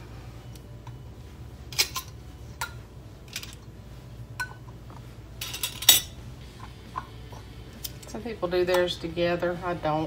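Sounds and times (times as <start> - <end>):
metal jar lids clinking: 5.4 - 7.2.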